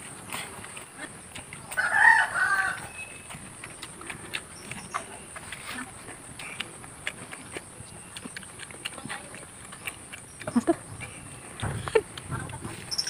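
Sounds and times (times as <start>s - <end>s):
rooster crowing: 1.7s - 3.1s.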